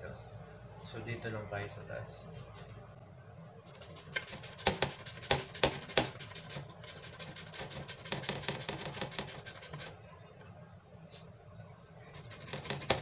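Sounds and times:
papaya scraping on metal grater: 0:03.7 - 0:09.9, 0:12.1 - 0:13.0.

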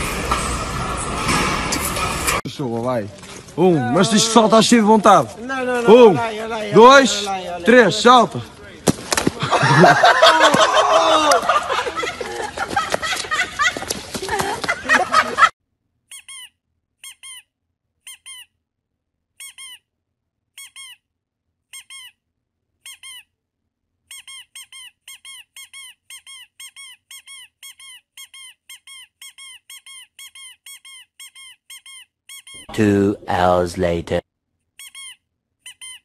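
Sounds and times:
voices and laughter: 0:09.3 - 0:15.5.

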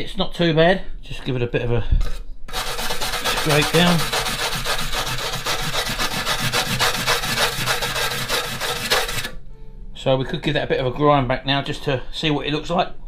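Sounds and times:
wire brush scraping metal: 0:02.0 - 0:09.4.

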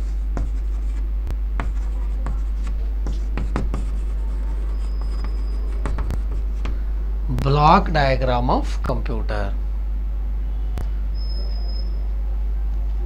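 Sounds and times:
chalk tapping and scratching: 0:00.0 - 0:01.0, 0:01.6 - 0:06.8
steady low hum: 0:00.0 - 0:13.0.

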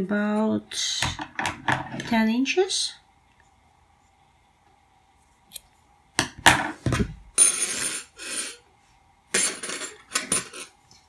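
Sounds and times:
metal tools clattering on table: 0:06.5 - 0:08.6, 0:09.3 - 0:10.8.

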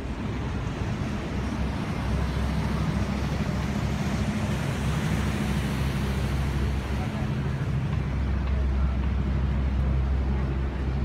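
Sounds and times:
low engine rumble: 0:00.0 - 0:11.0.

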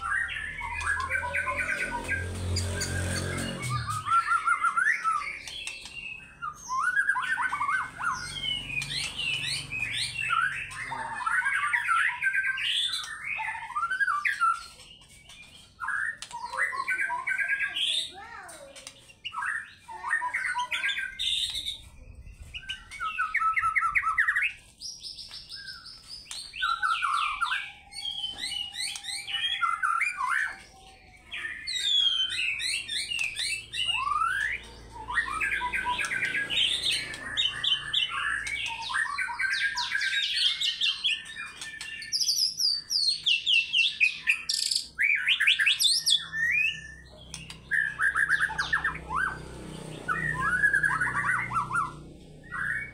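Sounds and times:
bird singing whistles and trills: 0:00.0 - 0:18.0, 0:18.8 - 0:52.9.

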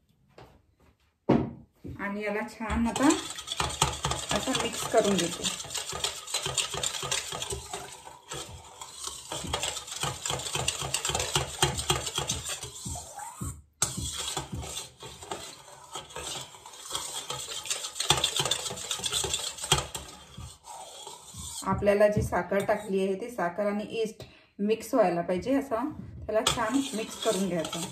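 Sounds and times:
metal spoon scraping steel bowl: 0:02.7 - 0:23.2, 0:26.4 - 0:27.9.

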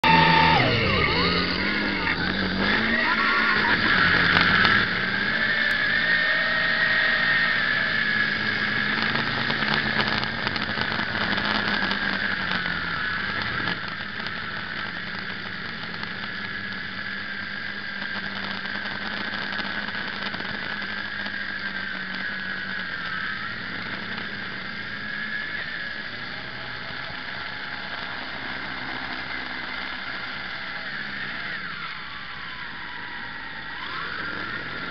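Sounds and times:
low hum: 0:00.0 - 0:19.0
drone propellers whining: 0:00.0 - 0:34.9.

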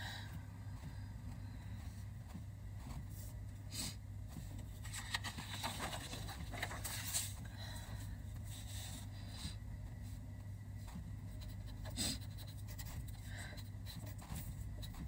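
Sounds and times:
steady low hum: 0:00.0 - 0:15.0
paper rustling on a wooden table: 0:04.8 - 0:07.4.

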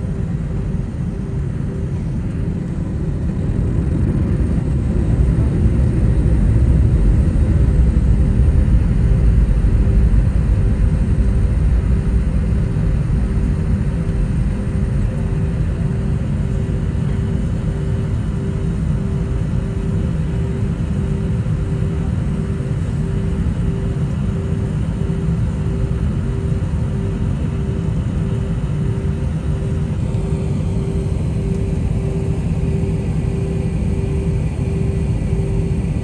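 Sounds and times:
faint steady hum: 0:00.0 - 0:36.0
jet engines rumbling: 0:00.0 - 0:36.0.

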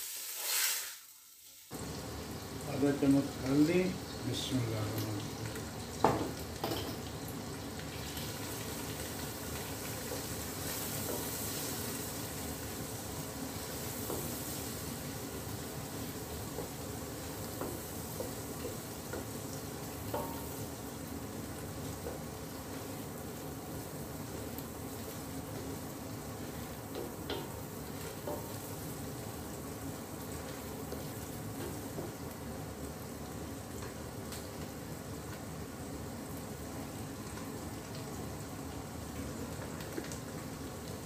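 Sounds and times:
onions sizzling in a pot: 0:00.0 - 0:41.0
spatula knocking on pot: 0:20.1 - 0:20.5.

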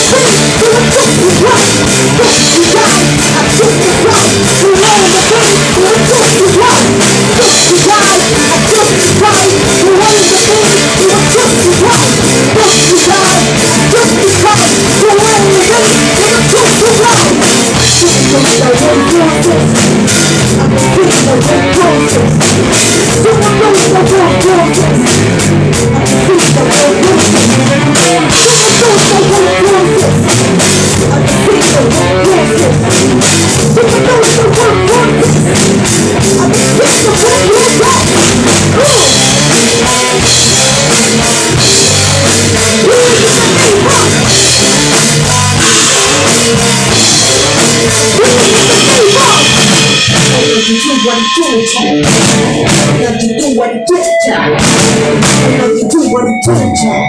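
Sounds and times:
woman singing into a microphone: 0:00.0 - 0:17.4
drum kit: 0:00.0 - 0:57.0
electric guitars: 0:00.0 - 0:57.0.

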